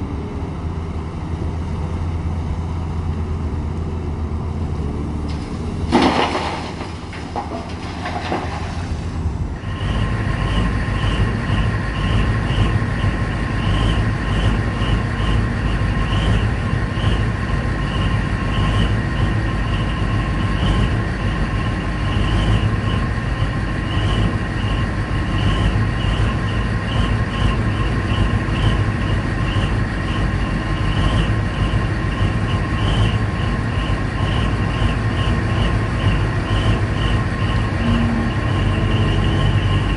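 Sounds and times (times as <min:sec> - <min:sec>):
diesel machinery drone: 0:00.0 - 0:39.9
rock crashing into truck bed: 0:05.3 - 0:09.1
rubble rattling: 0:05.9 - 0:09.0
steady machine whine: 0:07.1 - 0:39.9
pulsing high tone: 0:23.8 - 0:39.9.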